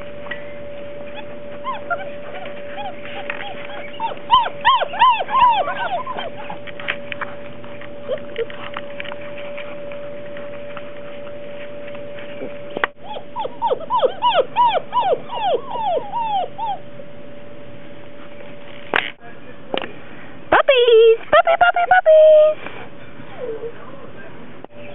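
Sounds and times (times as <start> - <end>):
faint steady hum: 0.0 - 24.9
puppies whimpering and yipping: 0.8 - 8.7, 12.3 - 16.9.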